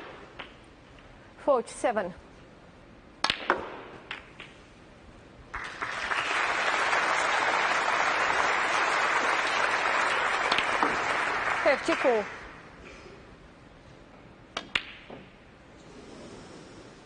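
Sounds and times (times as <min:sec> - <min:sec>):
snooker balls clicking: 0:03.2 - 0:04.6
audience applause: 0:05.5 - 0:12.4.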